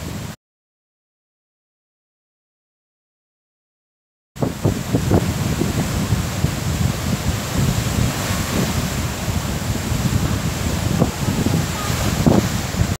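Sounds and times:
surf breaking on beach: 0:00.0 - 0:00.4, 0:04.4 - 0:13.0
wind buffeting microphone: 0:04.4 - 0:13.0.

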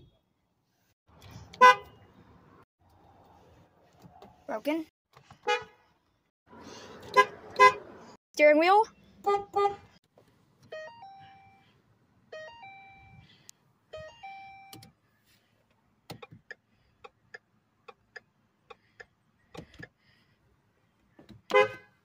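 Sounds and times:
car horn blast: 0:09.2 - 0:09.8, 0:21.5 - 0:22.0
electronic dashboard chimes: 0:10.7 - 0:11.6, 0:12.3 - 0:13.2, 0:14.0 - 0:14.8.

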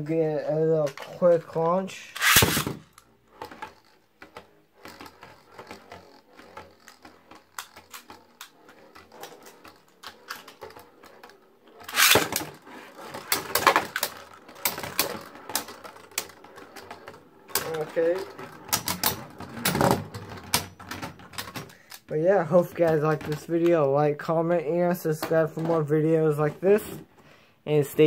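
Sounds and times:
spinning top clicking on plastic: 0:01.6 - 0:23.7
top launched with ripping burst: 0:02.2 - 0:02.8.

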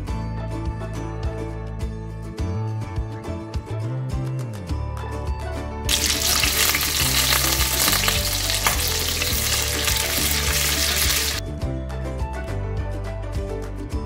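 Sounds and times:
background music: 0:00.0 - 0:14.0
sausages sizzling in a pan: 0:05.9 - 0:11.4.

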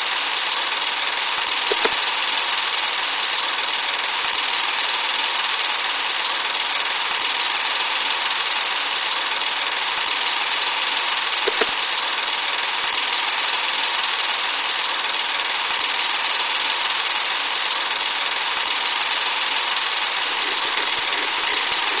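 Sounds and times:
film projector whirr and hiss: 0:00.0 - 0:22.0
short click: 0:01.7 - 0:02.0, 0:11.5 - 0:11.8.

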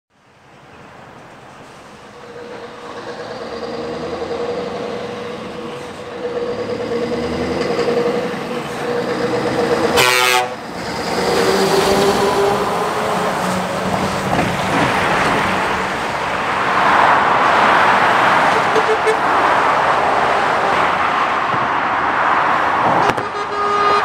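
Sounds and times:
short horn toot: 0:10.0 - 0:10.6, 0:23.0 - 0:24.0.

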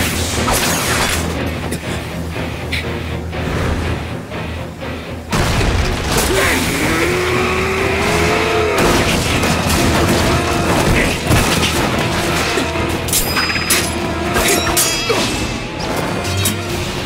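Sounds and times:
dramatic music: 0:00.0 - 0:17.0
booms: 0:05.3 - 0:06.8
wooden crates crashing: 0:08.8 - 0:12.6.

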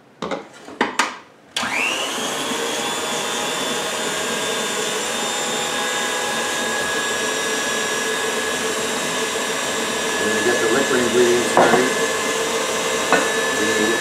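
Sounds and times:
stand mixer motor running: 0:01.6 - 0:14.0.

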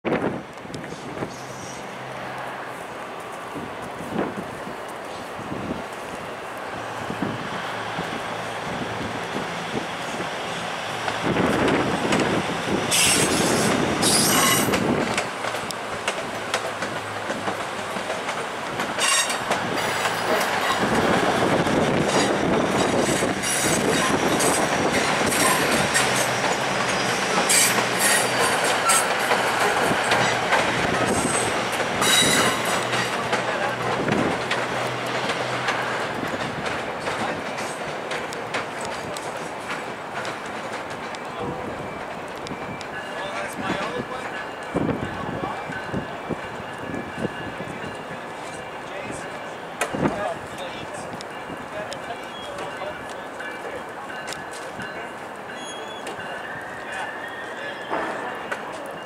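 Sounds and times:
train wheels clacking over rail joints: 0:08.8 - 0:57.0, 0:57.8 - 0:59.0
high-pitched wheel squeals: 0:12.9 - 0:14.8, 0:19.0 - 0:19.4, 0:27.0 - 0:29.1, 0:32.0 - 0:32.8, 0:55.5 - 0:58.1.

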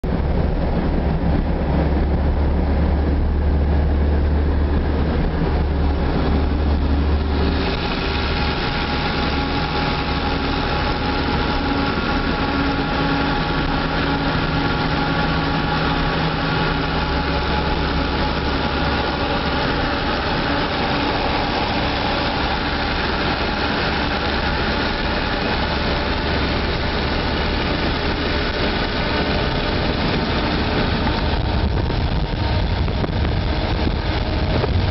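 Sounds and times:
car engine and road noise: 0:00.0 - 0:34.9
wind and tyre hiss: 0:00.1 - 0:34.9.

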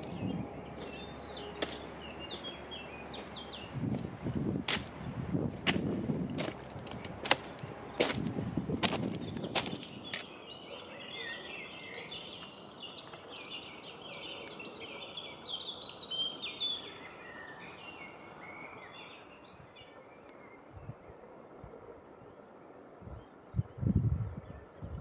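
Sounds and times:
songbirds chirping and trilling: 0:00.0 - 0:25.0
stones and trekking pole clacking: 0:01.6 - 0:01.9, 0:04.7 - 0:05.0, 0:05.6 - 0:10.3.

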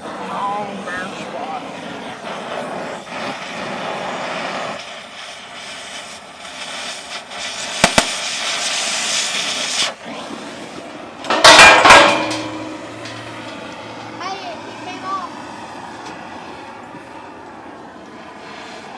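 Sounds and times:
cutting torch hissing: 0:00.0 - 0:18.9
steel pipe clanging: 0:11.2 - 0:14.0.

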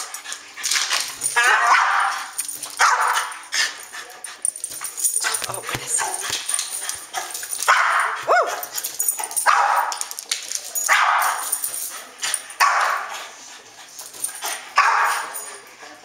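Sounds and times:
dog barking: 0:01.4 - 0:03.3, 0:07.7 - 0:08.7, 0:09.4 - 0:09.9, 0:12.6 - 0:13.1, 0:14.8 - 0:15.3.

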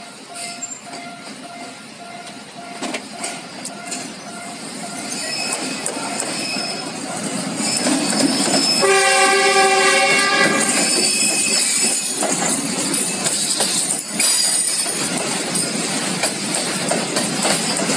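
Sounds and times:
diesel locomotive passing: 0:00.0 - 0:17.9
level-crossing warning bell: 0:00.0 - 0:17.9
locomotive horn blast: 0:08.8 - 0:10.8.

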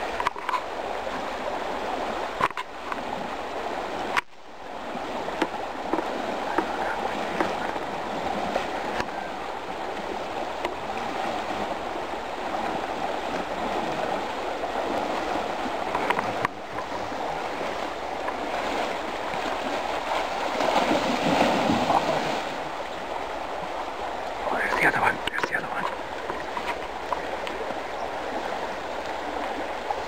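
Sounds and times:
river water rushing: 0:00.0 - 0:30.0
bear splashing through water: 0:12.6 - 0:22.7.

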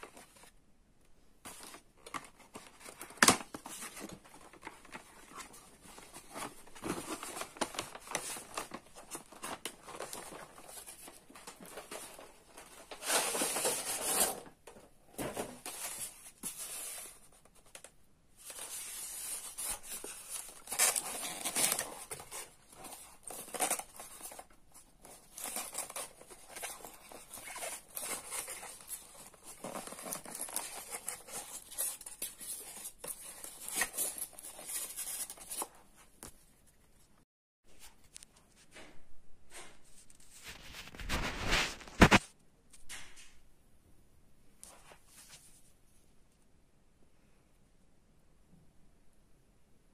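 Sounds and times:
cardboard box handling: 0:01.5 - 0:17.3, 0:18.4 - 0:35.7
paper wrapping crinkling: 0:01.5 - 0:36.4, 0:40.1 - 0:42.3.

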